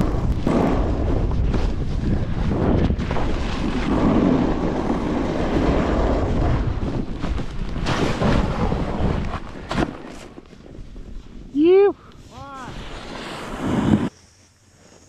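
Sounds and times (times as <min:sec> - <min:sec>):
wind buffeting microphone: 0:00.0 - 0:13.0
snowboard edges scraping snow: 0:00.0 - 0:15.0.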